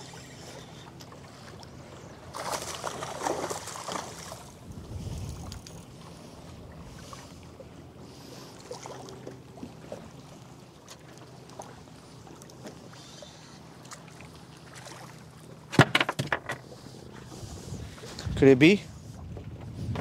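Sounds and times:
faint splashes and ticks: 0.0 - 4.5, 5.1 - 7.5, 8.1 - 15.7
water sloshing against a boat: 0.0 - 20.0.

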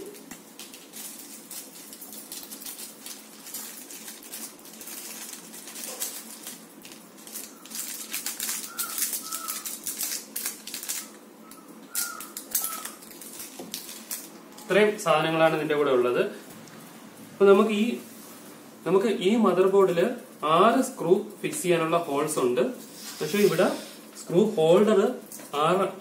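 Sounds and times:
plastic packets crinkling: 0.0 - 14.7.

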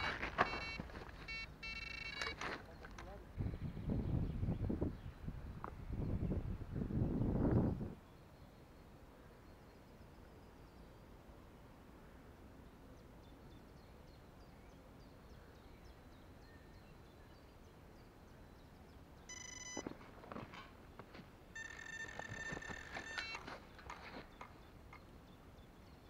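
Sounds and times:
bite alarm beeping: 0.0 - 2.4, 19.3 - 19.8, 21.6 - 23.5.

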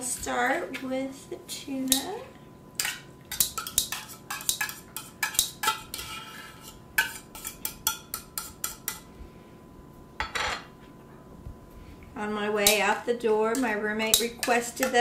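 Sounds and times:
fork scraping can: 3.4 - 7.7.

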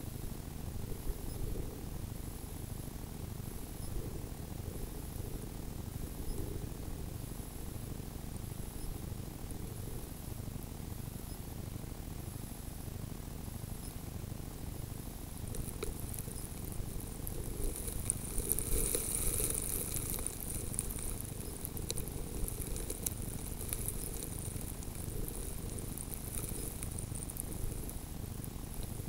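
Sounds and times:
faint high crackles and ticks: 13.3 - 29.0
wind rumbling on microphone: 15.4 - 29.0.

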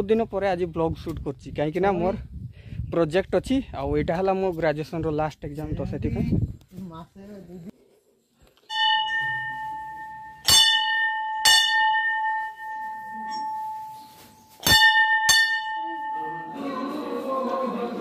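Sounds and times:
brass bell ringing: 8.7 - 16.6
music: 15.8 - 18.0.

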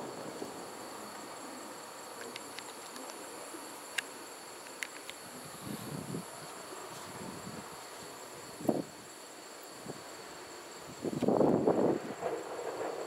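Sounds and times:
night insects chorus: 0.0 - 13.0
distant fireworks pops and thuds: 11.2 - 13.0.

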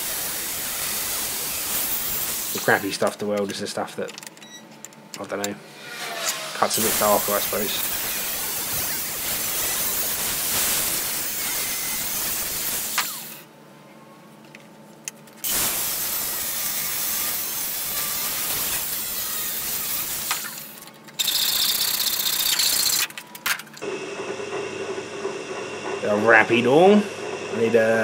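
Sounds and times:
blade sawing harshly: 0.0 - 3.0, 5.8 - 13.4, 15.4 - 23.0
angle grinder cutting metal: 0.0 - 3.1, 5.8 - 13.5, 15.4 - 23.1.

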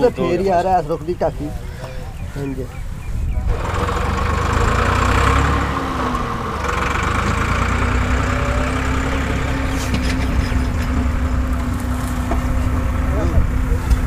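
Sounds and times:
diesel engine idling: 3.4 - 14.0.

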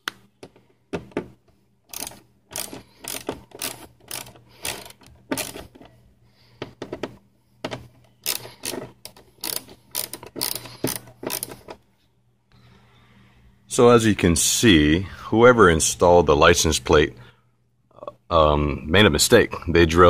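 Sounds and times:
ratchet wrench clicking: 1.9 - 5.7, 8.2 - 11.6.

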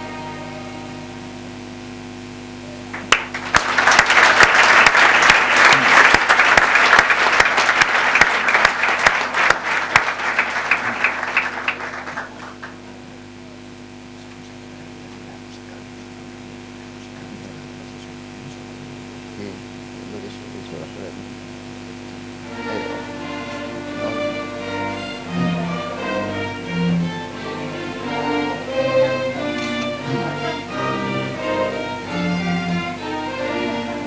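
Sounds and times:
string orchestra: 0.0 - 1.1, 22.4 - 34.0
steady low hum: 0.0 - 34.0
audience applauding: 2.9 - 13.2, 22.6 - 34.0.

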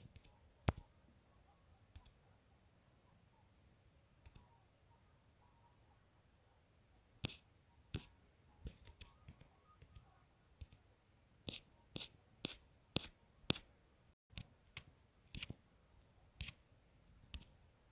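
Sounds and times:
fingers tapping a touchscreen: 8.0 - 10.8.

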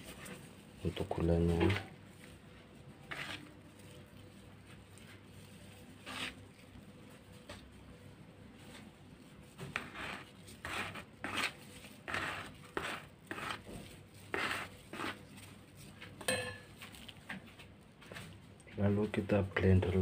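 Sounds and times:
spatula scraping plastic bowl: 3.1 - 3.5, 6.0 - 6.4, 9.6 - 15.2.

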